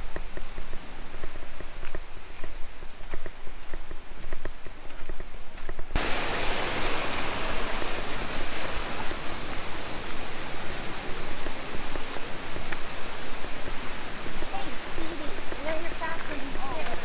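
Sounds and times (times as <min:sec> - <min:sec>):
light footsteps: 0:00.0 - 0:06.4, 0:08.4 - 0:17.0
waterfall rushing: 0:06.0 - 0:17.0.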